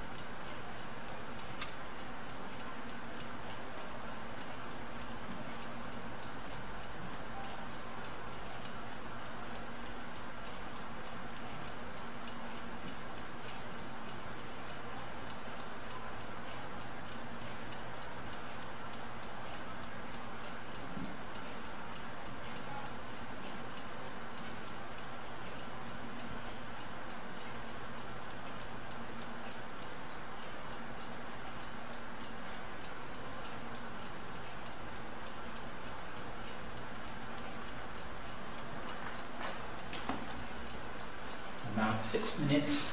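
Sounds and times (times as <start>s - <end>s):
clock ticking: 0.0s - 42.9s
faint steady hum: 0.0s - 42.9s.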